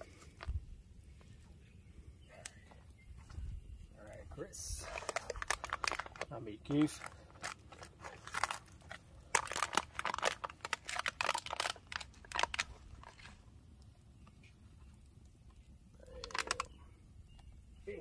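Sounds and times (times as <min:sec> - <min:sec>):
foil crinkling: 0:04.7 - 0:15.0, 0:16.1 - 0:16.8.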